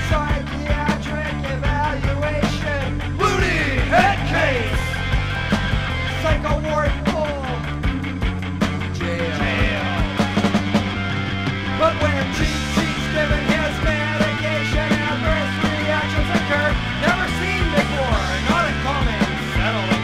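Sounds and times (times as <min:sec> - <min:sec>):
punk rock song from vinyl: 0:00.0 - 0:20.0.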